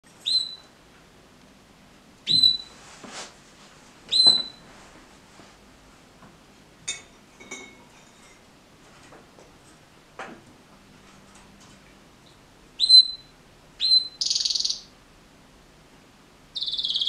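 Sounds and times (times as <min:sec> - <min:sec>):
canary chirps: 0:00.2 - 0:00.7, 0:02.2 - 0:02.8, 0:04.1 - 0:04.6, 0:12.8 - 0:15.0, 0:16.5 - 0:17.0
canary whistled calls: 0:00.2 - 0:00.7, 0:02.3 - 0:02.8, 0:04.1 - 0:04.6, 0:12.8 - 0:14.9, 0:16.6 - 0:17.0.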